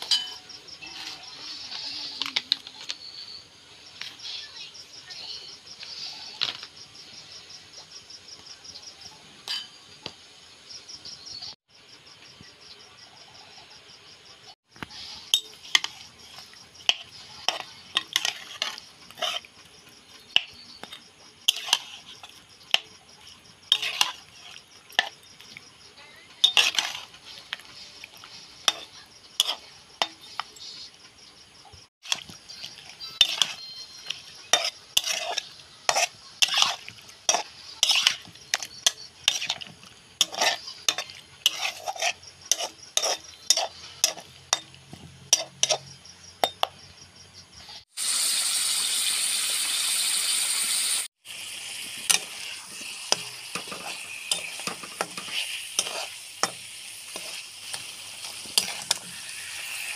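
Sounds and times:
metal spoon scraping a wok: 0.0 - 4.5, 9.4 - 9.9, 14.8 - 25.3, 26.2 - 30.8, 32.0 - 46.7, 51.7 - 59.9
high insect chirring: 51.3 - 59.9.

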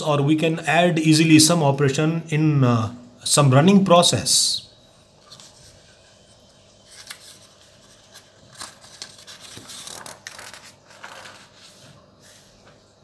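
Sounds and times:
paper rustling and sliding: 6.8 - 12.9.

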